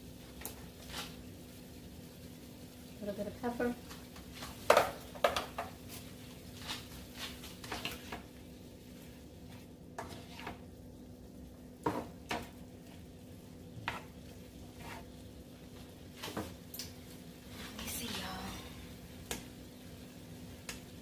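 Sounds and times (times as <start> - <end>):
utensil scraping and knocking pan: 10.0 - 10.6, 13.8 - 15.2.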